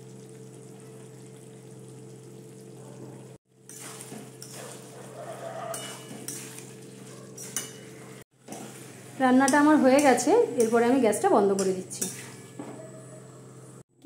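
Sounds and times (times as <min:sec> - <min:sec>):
curry sizzling in pan: 0:00.0 - 0:12.5
spatula scraping pan: 0:03.7 - 0:10.8.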